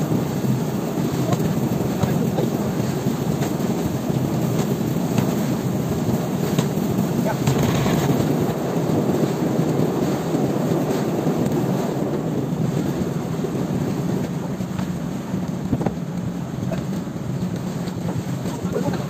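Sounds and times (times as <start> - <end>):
choppy sea: 0.0 - 19.0
wind rumble: 0.0 - 19.0
light knocks on boat: 14.7 - 16.2.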